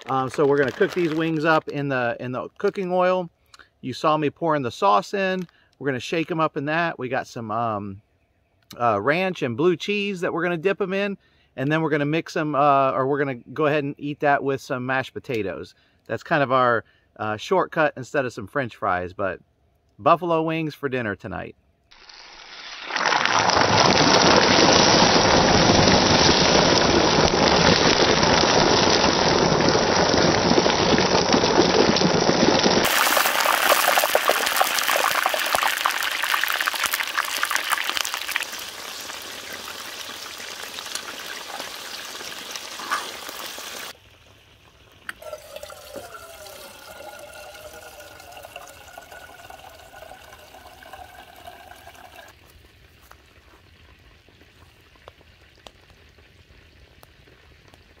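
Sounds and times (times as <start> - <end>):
chicken frying in oil sizzling: 21.9 - 48.5, 49.1 - 58.0.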